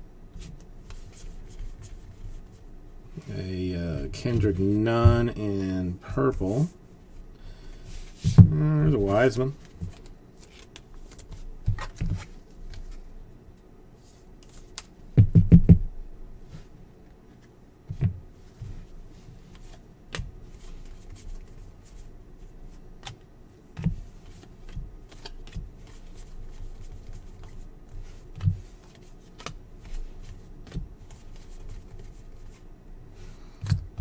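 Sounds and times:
cards rustling and sliding: 0.4s - 2.6s, 8.0s - 13.1s, 14.0s - 14.9s, 23.8s - 32.6s.

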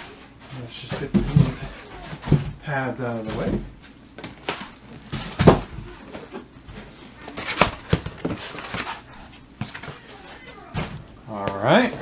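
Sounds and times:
foam pads rustling: 0.0s - 11.1s.

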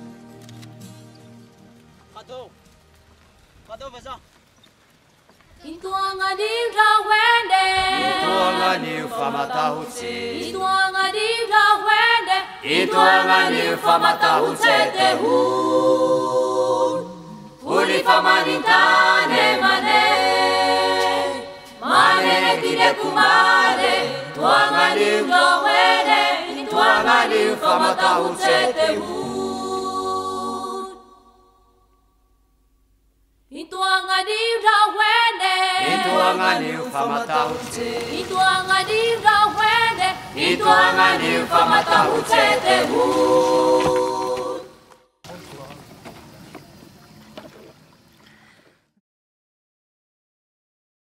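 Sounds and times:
voices singing in harmony: 5.6s - 32.0s, 33.5s - 45.0s.

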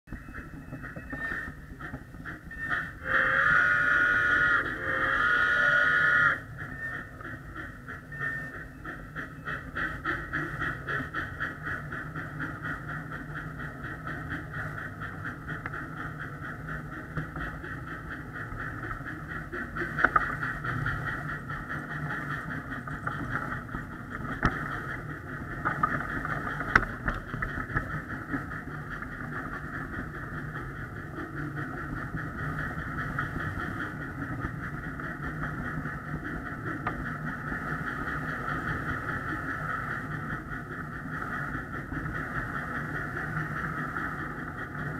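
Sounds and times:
miniature train pulsing: 0.1s - 44.9s.

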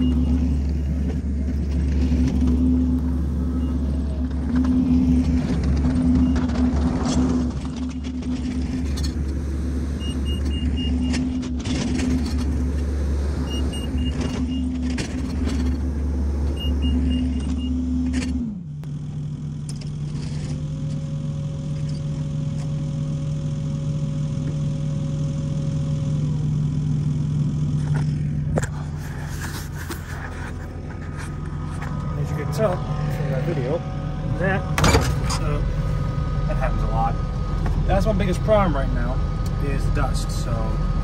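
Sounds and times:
reverse alarm beeping: 0.0s - 0.6s, 3.3s - 4.0s, 10.0s - 11.2s, 16.6s - 17.8s
diesel engine running: 0.0s - 41.0s.

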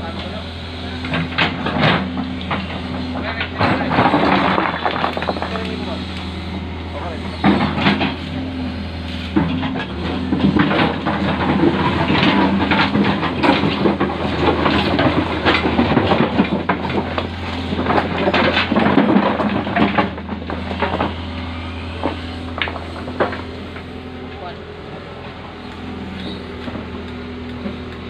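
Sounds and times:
excavator diesel engine running: 0.0s - 28.0s
stones clattering against bucket: 3.4s - 5.8s.

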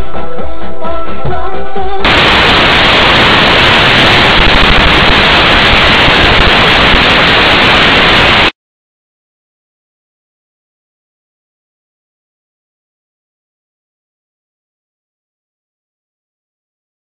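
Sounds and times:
music: 0.0s - 2.1s
loud static hiss: 2.0s - 8.6s.

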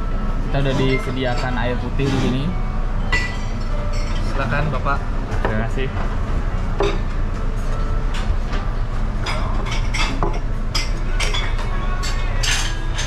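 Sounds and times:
steady low hum: 0.0s - 13.0s
glasses and dishes clinking: 0.6s - 6.1s, 6.8s - 7.2s, 9.2s - 13.0s.

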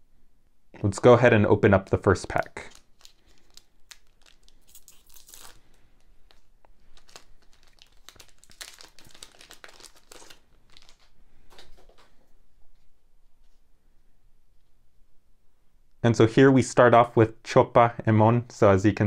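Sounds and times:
plastic wrapper tearing and crinkling: 2.2s - 11.7s.

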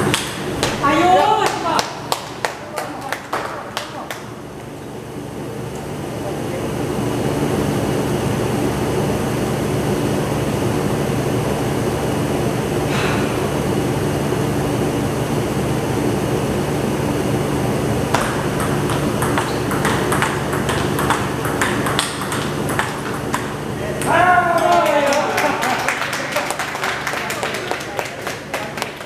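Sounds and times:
table tennis ball clicking: 18.1s - 24.1s.

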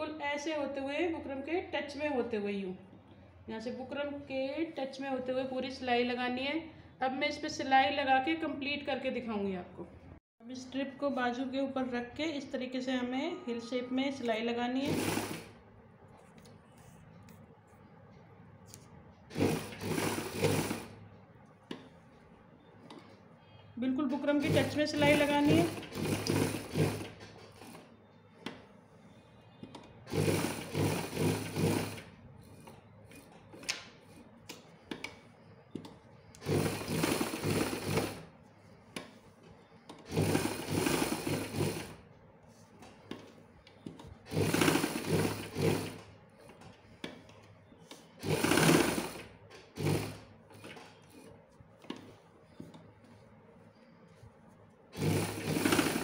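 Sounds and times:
sewing machine stitching: 14.8s - 15.6s, 19.3s - 21.0s, 24.2s - 28.0s, 29.6s - 34.3s, 35.8s - 38.3s, 39.8s - 42.1s, 43.0s - 47.3s, 47.9s - 52.8s, 54.9s - 56.0s.

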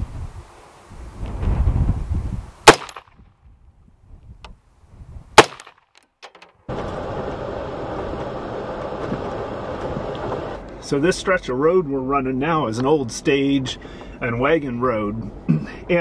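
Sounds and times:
wind buffeting microphone: 0.0s - 5.4s
vehicle driving on dirt track: 6.7s - 11.6s.

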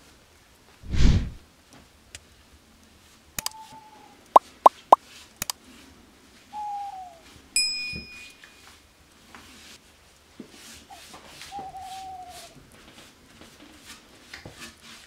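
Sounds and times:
bell-like ding: 7.6s - 8.4s.

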